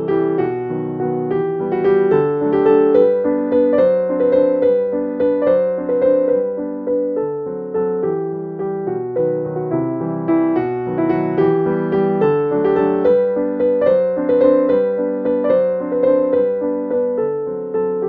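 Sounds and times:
gentle piano tune: 0.0s - 18.0s.

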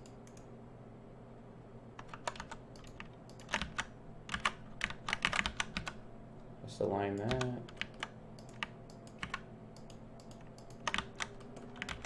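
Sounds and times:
faint steady hum: 0.0s - 12.0s
keyboard keys clicking: 2.0s - 6.0s, 7.2s - 12.0s.

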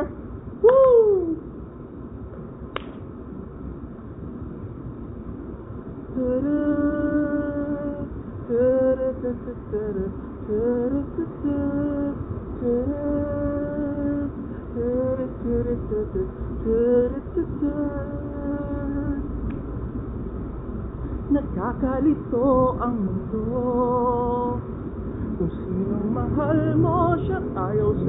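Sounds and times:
street traffic rumble: 0.0s - 28.0s
man singing unaccompanied: 25.4s - 28.0s.

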